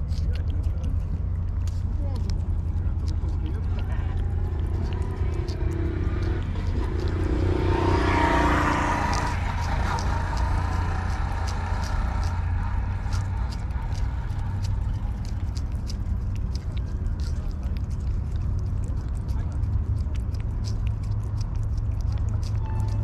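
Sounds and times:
cat licking wet clicks: 0:00.0 - 0:23.0
low rumble: 0:00.0 - 0:23.0
broad rushing noise: 0:02.4 - 0:18.7.

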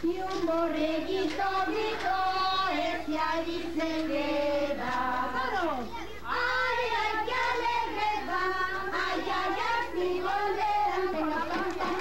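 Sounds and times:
children singing together: 0:00.0 - 0:12.0.

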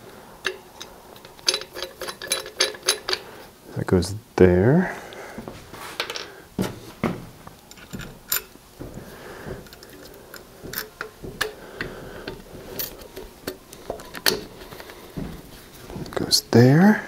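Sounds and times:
metal fittings clicking: 0:00.4 - 0:03.3, 0:07.7 - 0:08.6, 0:09.6 - 0:15.0.

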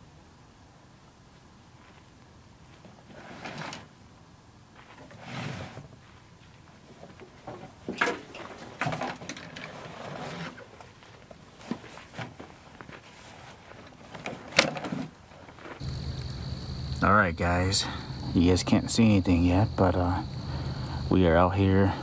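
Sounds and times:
gear rustling and shuffling: 0:04.7 - 0:15.9.

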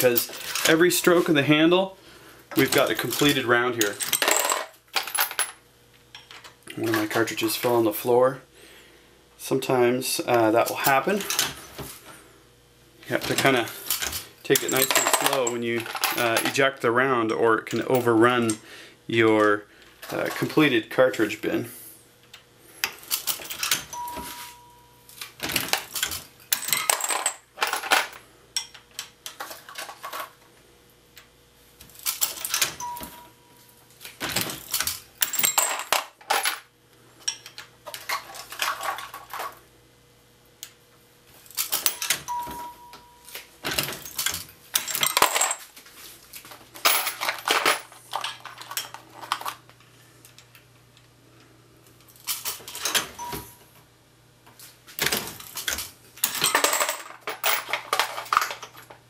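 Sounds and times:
brass cases clinking: 0:02.6 - 0:05.6, 0:13.2 - 0:16.6, 0:23.1 - 0:24.9, 0:25.5 - 0:28.8, 0:32.1 - 0:33.4, 0:34.2 - 0:36.6, 0:41.6 - 0:45.7, 0:46.8 - 0:49.6, 0:52.3 - 0:53.6, 0:55.0 - 0:58.9.

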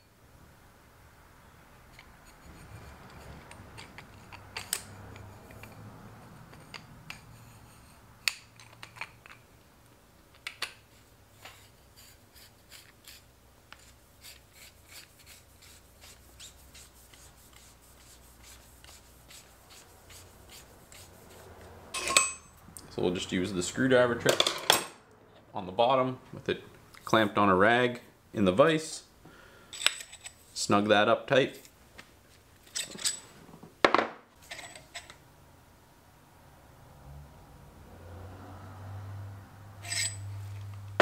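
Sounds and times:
faint metal rubbing: 0:01.8 - 0:09.1, 0:10.9 - 0:22.5, 0:39.8 - 0:40.6.

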